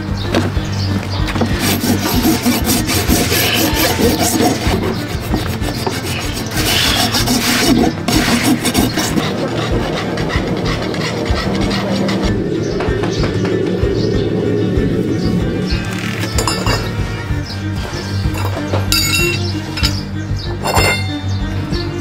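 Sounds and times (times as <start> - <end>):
rasp filing hoof: 1.2 - 12.4, 17.7 - 21.5.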